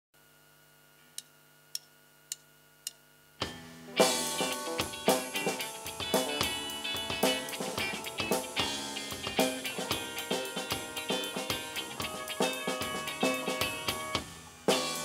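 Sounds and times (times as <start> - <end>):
faint steady hum: 0.2 - 15.0
drummer count-in clicks: 1.2 - 3.0
live rock band playing: 3.4 - 15.0.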